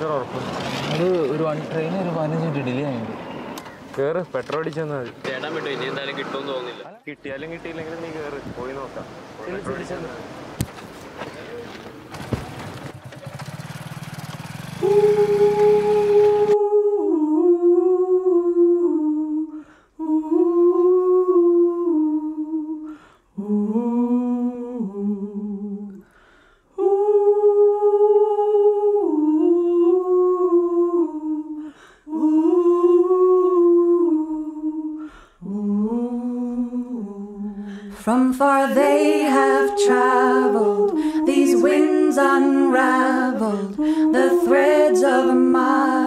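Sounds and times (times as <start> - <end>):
person humming a melody: 14.8 - 26.0, 26.8 - 46.0.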